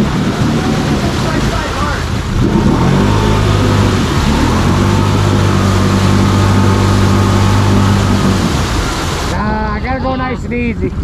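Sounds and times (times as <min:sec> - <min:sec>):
quad bike engine revving: 0:00.0 - 0:09.4.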